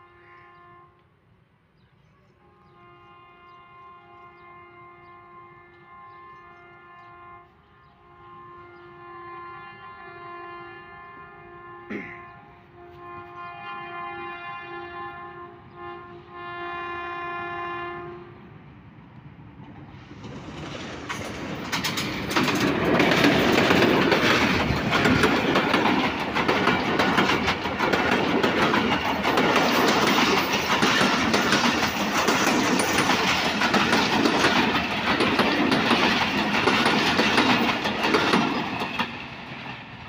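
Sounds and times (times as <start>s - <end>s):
passenger train passing: 0.0s - 40.0s
train wheels clickety-clack: 19.1s - 40.0s.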